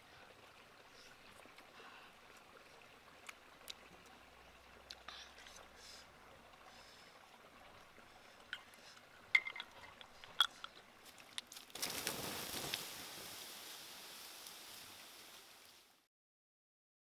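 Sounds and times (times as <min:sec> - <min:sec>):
water hissing on hot embers: 0:05.0 - 0:16.1.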